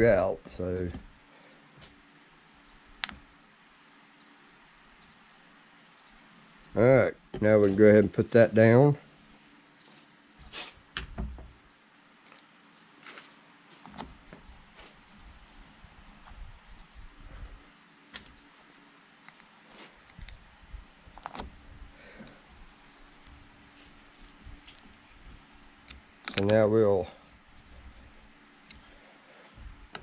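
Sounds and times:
crickets trilling: 0:00.0 - 0:30.0
hand tools clicking and tapping: 0:25.8 - 0:26.6.

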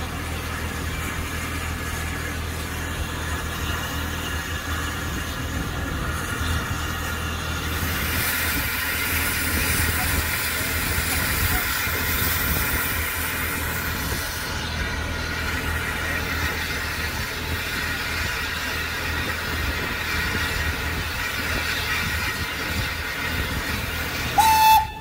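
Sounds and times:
steam locomotive hissing: 0:00.0 - 0:25.0
loud single-pitched whistle tone: 0:24.4 - 0:25.0.

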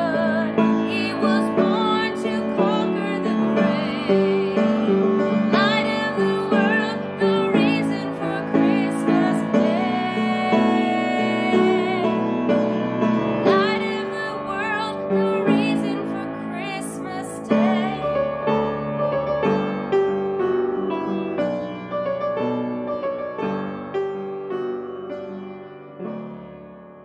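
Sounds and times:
woman singing with vibrato: 0:00.0 - 0:12.4, 0:13.3 - 0:18.2
piano accompaniment: 0:00.0 - 0:27.0.

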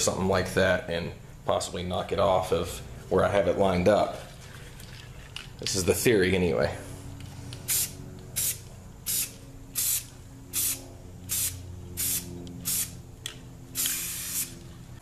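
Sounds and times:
aerosol can spraying: 0:07.7 - 0:13.0, 0:13.8 - 0:14.6.

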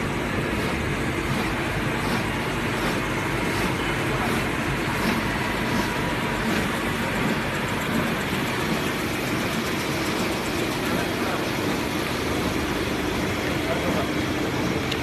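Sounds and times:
paper cutting machine running: 0:00.0 - 0:15.0.

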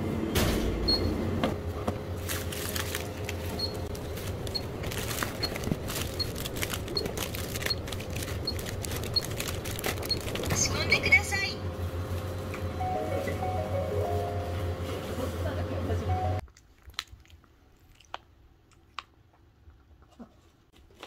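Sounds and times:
plastic packets crinkling: 0:02.2 - 0:11.1.

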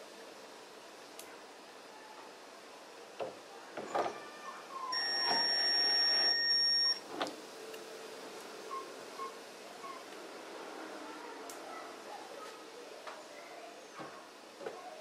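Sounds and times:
cordless drill whirring: 0:05.0 - 0:07.0.

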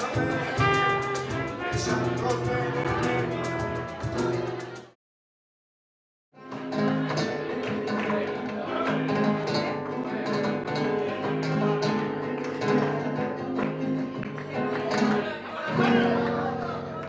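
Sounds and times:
double bass: 0:00.0 - 0:04.9
sharp percussive strokes: 0:00.0 - 0:04.9
strummed acoustic guitar: 0:00.0 - 0:05.0, 0:06.4 - 0:17.0.

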